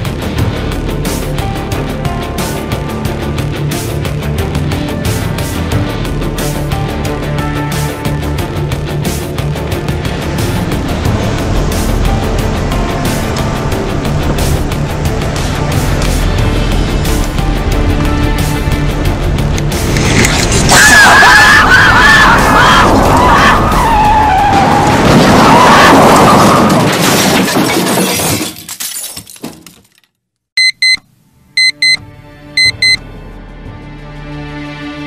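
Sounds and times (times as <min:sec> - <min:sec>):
low eerie music: 0:00.0 - 0:26.2, 0:32.0 - 0:35.0
loud dramatic music: 0:00.0 - 0:26.9
crashing shattering noise: 0:24.6 - 0:30.0
digital alarm clock beeping: 0:30.6 - 0:31.0, 0:31.6 - 0:32.0, 0:32.6 - 0:33.0.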